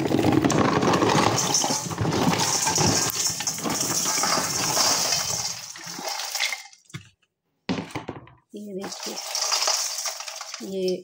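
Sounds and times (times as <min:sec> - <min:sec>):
clay chunks poured into steel bowl: 0:00.0 - 0:07.0, 0:08.8 - 0:11.0.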